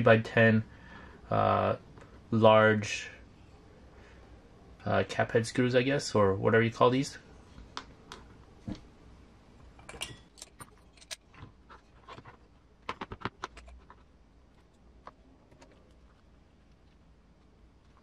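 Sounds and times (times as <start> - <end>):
small hardware parts clicking: 9.9 - 11.4.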